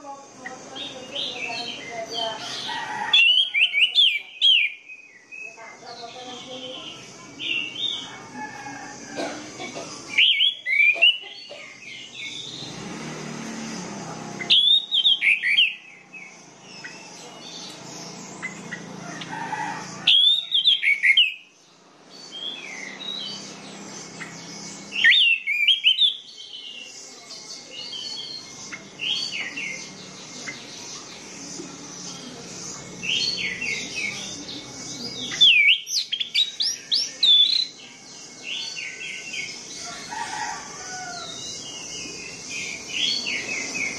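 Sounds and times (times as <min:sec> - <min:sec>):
thrush whistled song: 0:10.2 - 0:11.2, 0:14.4 - 0:15.8, 0:25.0 - 0:26.3, 0:35.4 - 0:37.7.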